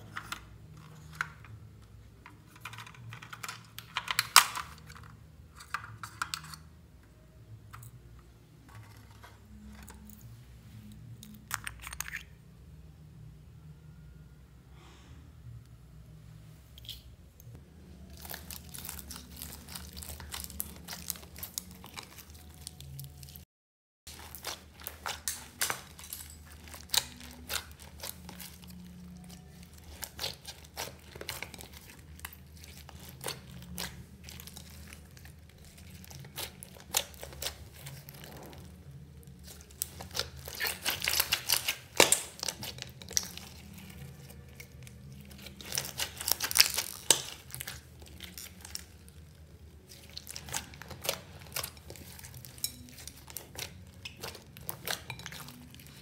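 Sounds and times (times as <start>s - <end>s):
slime squishing and popping: 18.0s - 23.4s, 24.1s - 56.0s.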